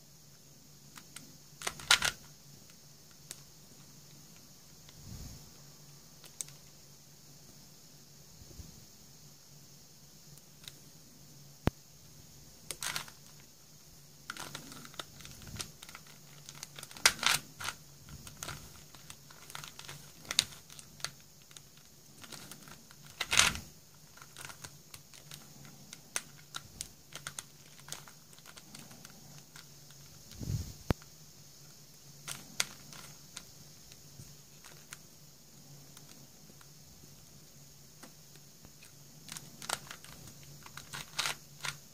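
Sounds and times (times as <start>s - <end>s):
faint steady hum: 0.0s - 41.9s
plastic puzzle clicking and clacking: 0.9s - 2.3s, 12.7s - 13.4s, 14.3s - 30.2s, 32.2s - 34.0s, 34.6s - 35.0s, 38.0s - 41.9s.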